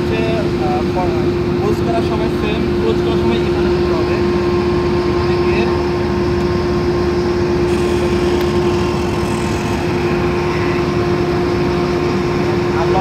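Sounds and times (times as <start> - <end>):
machinery drone: 7.6 - 12.2.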